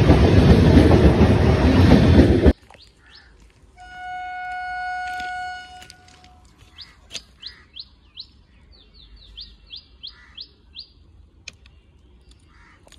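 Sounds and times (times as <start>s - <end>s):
small birds chirping: 2.6s - 3.6s, 6.4s - 12.9s.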